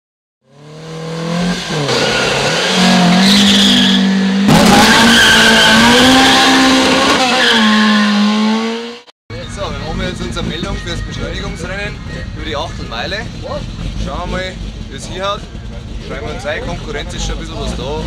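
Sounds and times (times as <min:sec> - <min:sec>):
car engines revving high: 0:00.4 - 0:18.0
tyres squealing: 0:01.7 - 0:08.1.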